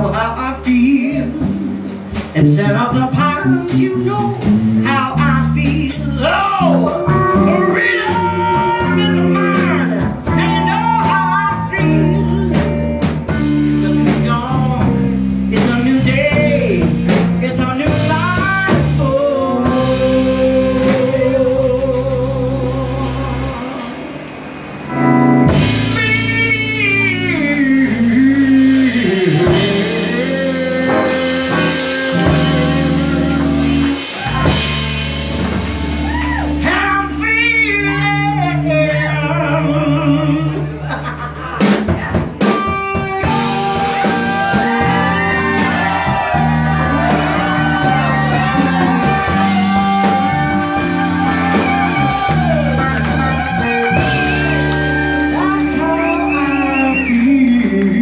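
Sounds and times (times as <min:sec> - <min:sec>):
lead vocal singing: 0:00.0 - 0:24.3, 0:25.5 - 0:34.8, 0:43.2 - 0:54.5, 0:55.3 - 0:58.0
live blues-rock band: 0:00.0 - 0:58.0.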